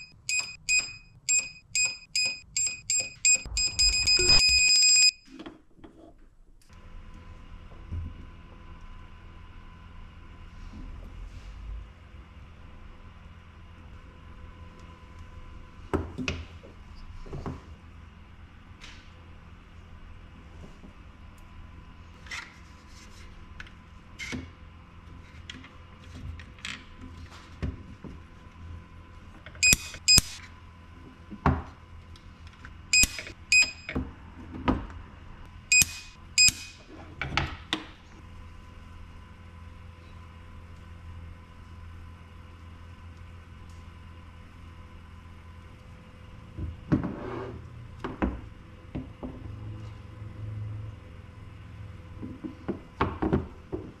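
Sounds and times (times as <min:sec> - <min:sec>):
steady low hum: 0:00.0 - 0:05.2
short beep: 0:00.0 - 0:05.3, 0:29.6 - 0:30.4, 0:33.0 - 0:33.9, 0:35.7 - 0:36.8
spot welder snap: 0:29.6 - 0:30.4, 0:33.0 - 0:33.7, 0:35.8 - 0:36.8.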